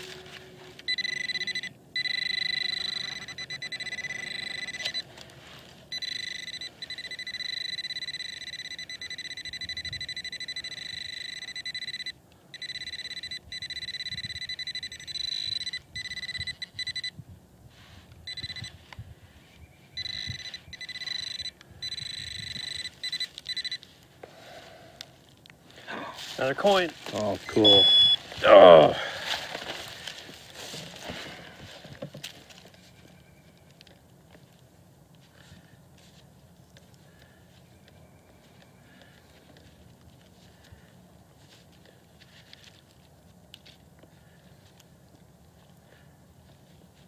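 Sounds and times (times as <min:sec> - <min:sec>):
pinpointer high tone: 0:00.0 - 0:05.2, 0:05.9 - 0:17.2, 0:18.2 - 0:18.8, 0:19.4 - 0:23.9, 0:27.4 - 0:29.0.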